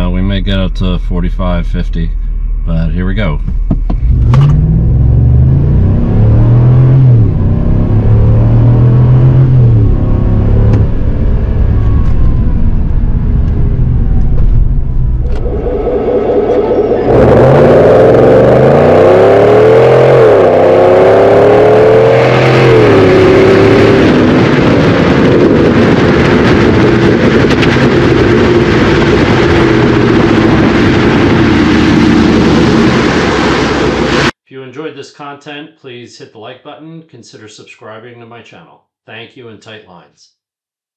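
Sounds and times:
engine revving under full throttle: 4.0 - 12.2, 15.3 - 34.3.

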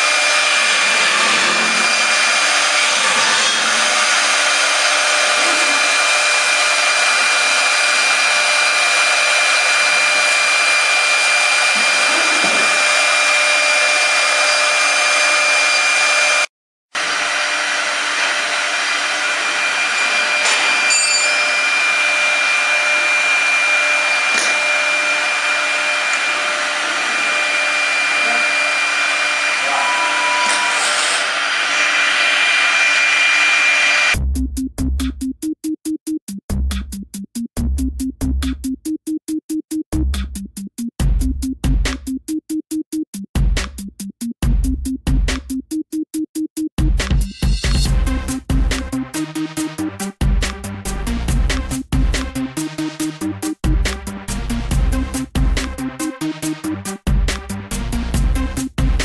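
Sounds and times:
router bits cutting wood: 0.0 - 16.4, 17.0 - 34.2
cnc router spindle whine: 0.0 - 34.2.

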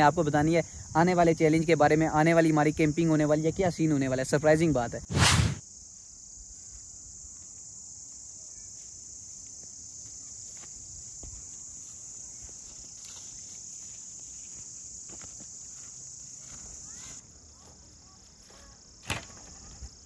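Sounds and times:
crickets chirping: 0.0 - 20.0
footsteps rustling: 8.7 - 18.8.

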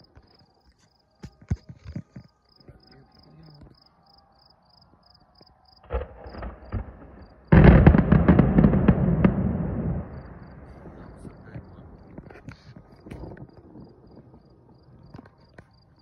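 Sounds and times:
distant fireworks bangs and crackles: 5.8 - 16.0.

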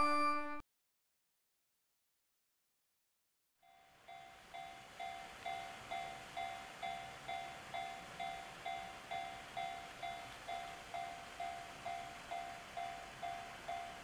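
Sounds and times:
level crossing warning bell: 3.6 - 14.0.

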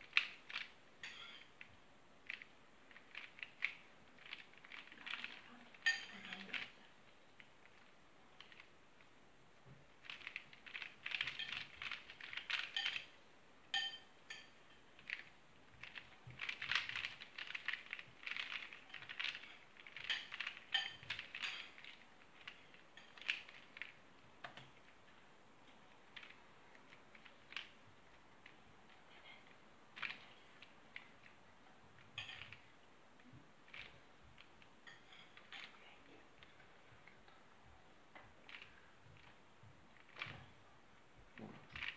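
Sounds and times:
plastic puzzle clicking: 0.0 - 6.8, 7.4 - 8.7, 10.0 - 13.1, 15.0 - 27.8, 30.0 - 31.4, 38.2 - 40.4, 41.7 - 41.9.

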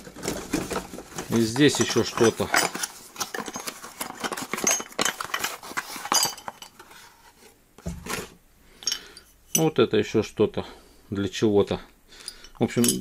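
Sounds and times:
paper and cardboard rustling: 0.0 - 8.4
metal parts clinking: 1.2 - 6.8, 8.8 - 9.7, 12.2 - 13.0.

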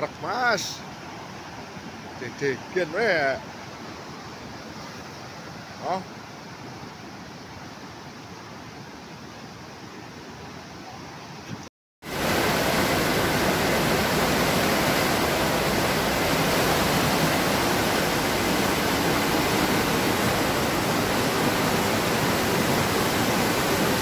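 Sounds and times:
floodwater rushing: 12.0 - 24.0.

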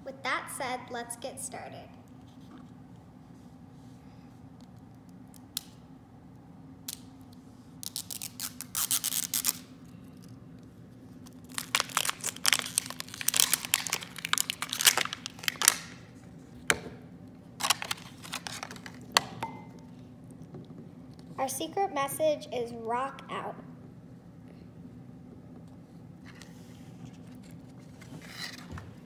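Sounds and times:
plastic wrapping tearing and crinkling: 7.8 - 10.4, 11.2 - 16.1, 17.6 - 19.2.

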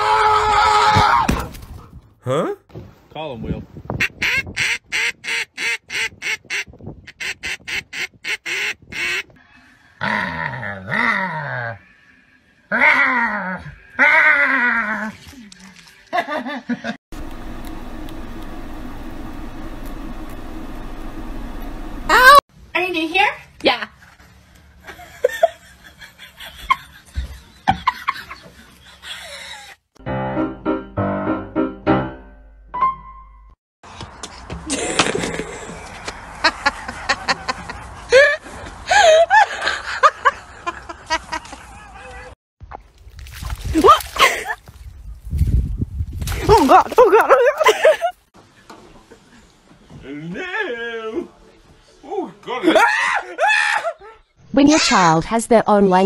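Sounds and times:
duck call quacking: 4.0 - 9.3.

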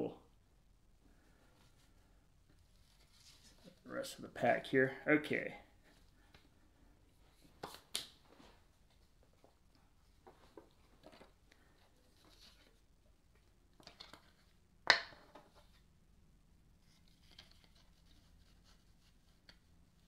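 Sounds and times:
cards rustling: 16.8 - 19.7.

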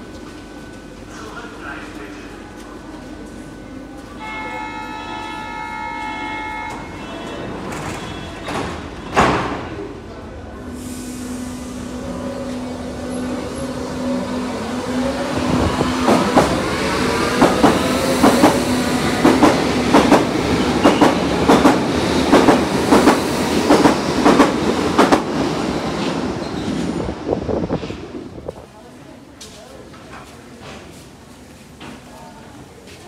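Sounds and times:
train wheels clacking over rail joints: 17.4 - 25.3.

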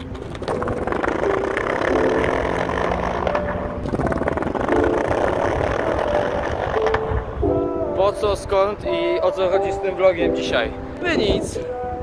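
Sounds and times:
skateboard wheels rolling on concrete: 0.0 - 7.7.

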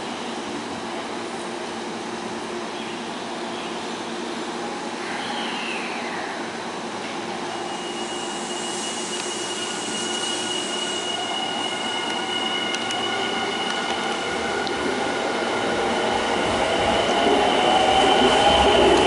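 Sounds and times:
electric train rolling: 7.2 - 19.0
high brake squeal: 7.6 - 13.8.

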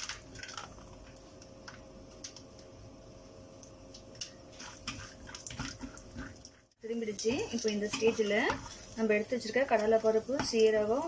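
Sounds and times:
faint steady hum: 0.0 - 11.0
nuts sizzling and popping in oil: 0.0 - 11.0
wooden spatula stirring: 4.4 - 11.0.

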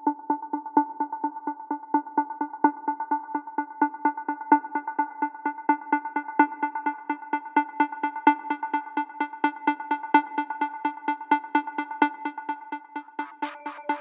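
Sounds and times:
pulsing synthesizer chord: 7.1 - 14.0.

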